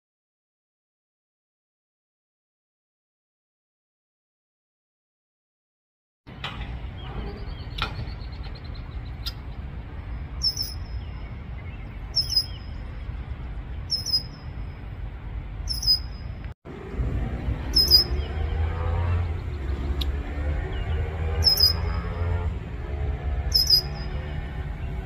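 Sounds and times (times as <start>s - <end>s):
steady low rumble: 6.3s - 25.0s
blackbird high call: 10.4s - 12.9s, 13.9s - 14.6s, 15.7s - 16.3s, 17.7s - 18.4s, 21.4s - 22.2s, 23.5s - 24.2s.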